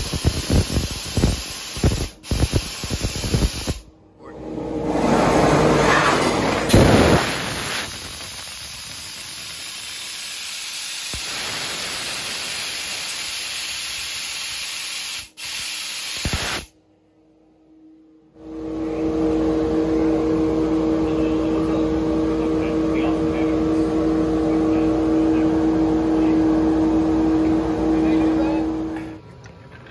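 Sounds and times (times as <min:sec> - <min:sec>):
laser cutter gas jet hissing: 0:00.0 - 0:03.9, 0:06.7 - 0:16.7
low steady hum: 0:16.8 - 0:29.9.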